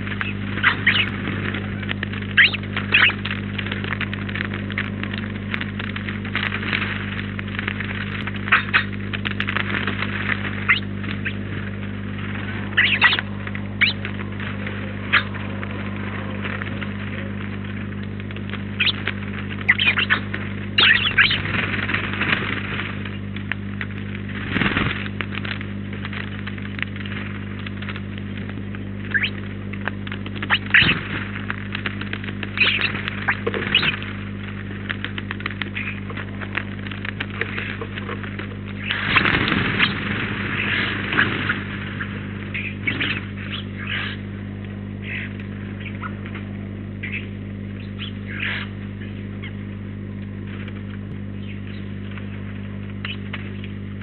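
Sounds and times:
electrical mains hum: 0:00.0 - 0:54.0
small birds chirping: 0:00.1 - 0:01.1, 0:02.3 - 0:03.2, 0:12.7 - 0:14.1, 0:18.7 - 0:19.0, 0:19.6 - 0:20.2, 0:20.8 - 0:21.4, 0:29.1 - 0:29.4, 0:30.5 - 0:31.0, 0:32.5 - 0:34.0, 0:35.6 - 0:36.1, 0:40.6 - 0:44.2, 0:45.0 - 0:46.3, 0:47.0 - 0:49.6, 0:51.4 - 0:52.3.

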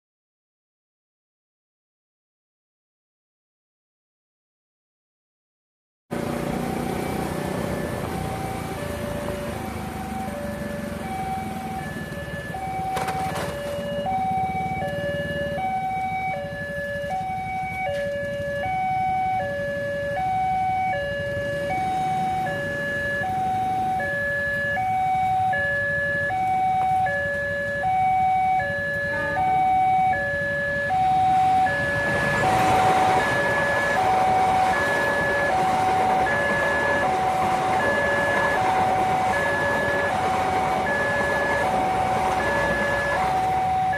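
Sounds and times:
passing train rushing: 0:06.1 - 0:13.5, 0:20.5 - 0:24.0, 0:30.8 - 0:43.9
level crossing two-tone alarm: 0:06.4 - 0:43.9.

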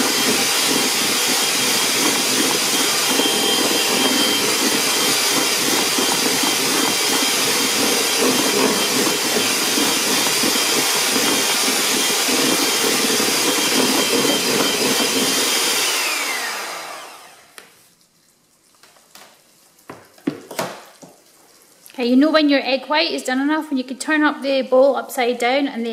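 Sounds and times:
electric hand mixer whirring: 0:00.0 - 0:17.8.

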